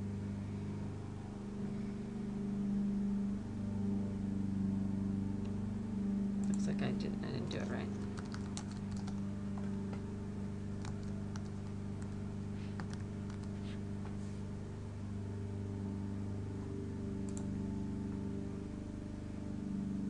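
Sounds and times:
steady low hum: 0:00.0 - 0:20.0
computer keyboard keystrokes: 0:06.4 - 0:06.6, 0:08.0 - 0:09.7, 0:10.8 - 0:12.2, 0:12.8 - 0:13.6, 0:17.3 - 0:17.5.

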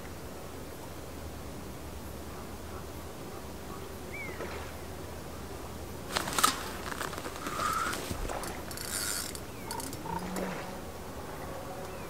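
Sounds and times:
fishing rod rustle and knock: 0:06.0 - 0:10.5
fishing reel clicking and whirring: 0:06.4 - 0:10.2.

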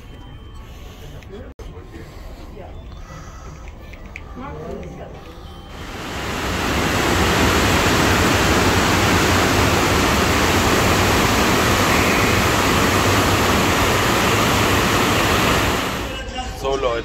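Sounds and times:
loud steady rushing noise: 0:05.7 - 0:16.6.

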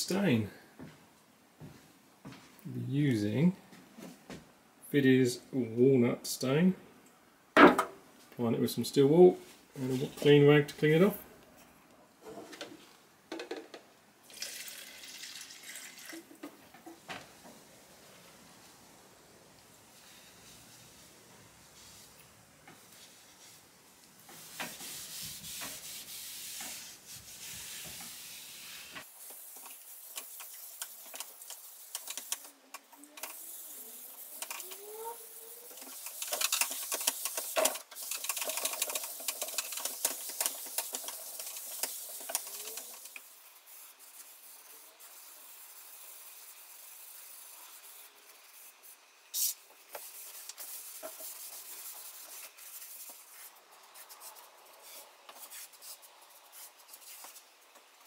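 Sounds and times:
cloth wiping wood: 0:22.8 - 0:30.2
steel wool scrubbing wood: 0:23.0 - 0:32.4.

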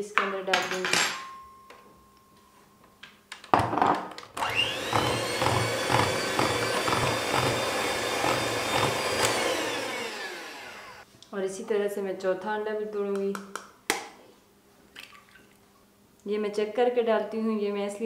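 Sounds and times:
electric hand mixer whine: 0:04.4 - 0:11.0.

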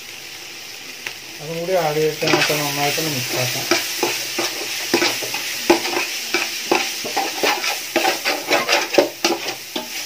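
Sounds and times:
food sizzling: 0:00.0 - 0:10.0
metal spatula scraping pot: 0:03.3 - 0:10.0.

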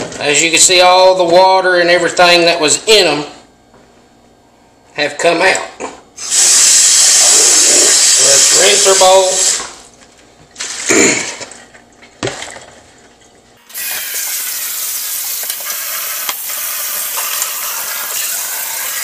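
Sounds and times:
faucet water stream: 0:06.2 - 0:09.9, 0:13.6 - 0:19.0.

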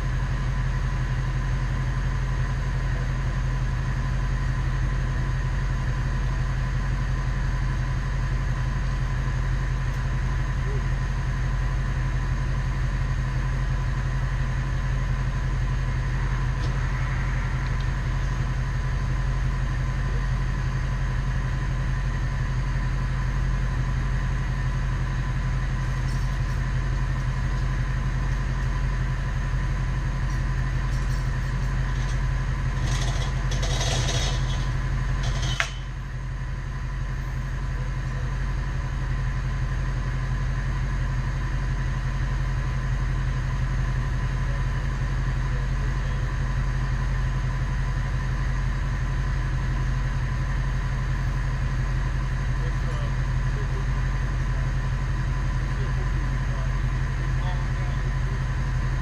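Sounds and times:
truck engine humming: 0:00.0 - 0:59.0
sharp metallic clanks: 0:30.4 - 0:36.0.

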